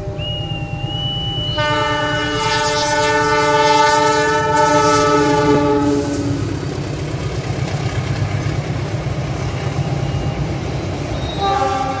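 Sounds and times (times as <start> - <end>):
locomotive air horn blast: 0.0 - 6.6, 11.2 - 12.0
low rumble of train: 0.0 - 12.0.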